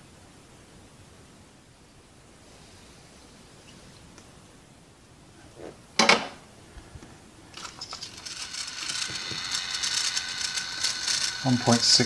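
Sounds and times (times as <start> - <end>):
rattles and clicks of parts: 7.5 - 12.0
steady high whine: 7.6 - 12.0.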